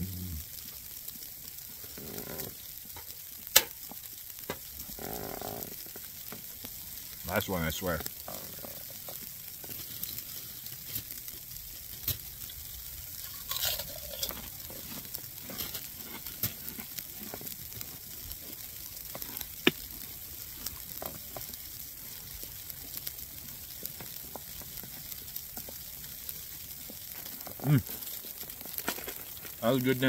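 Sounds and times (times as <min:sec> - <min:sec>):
person eating: 0:00.0 - 0:00.5, 0:13.2 - 0:17.5, 0:27.4 - 0:28.1
faint steady hiss: 0:00.0 - 0:30.0.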